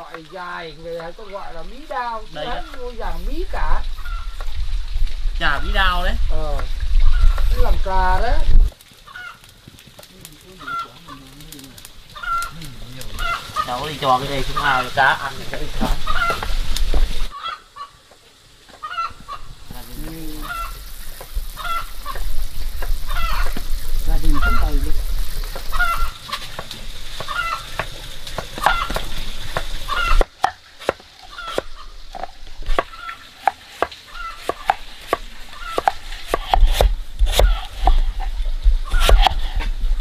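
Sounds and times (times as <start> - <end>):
poultry calling: 1.5 - 4.5, 7.0 - 8.0, 9.0 - 9.5, 10.5 - 11.4, 12.1 - 25.0, 25.6 - 26.6, 27.2 - 29.1, 29.8 - 30.3, 31.2 - 32.0, 32.8 - 36.3, 37.3 - 38.2.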